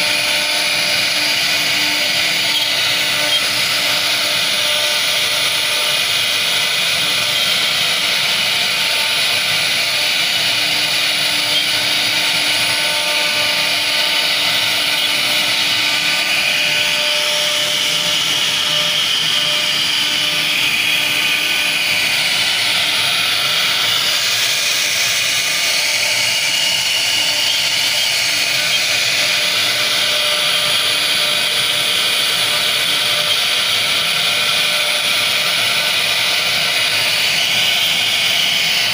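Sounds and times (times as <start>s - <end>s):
router bit carving wood: 0.0s - 38.9s
router spindle whining: 0.0s - 38.9s.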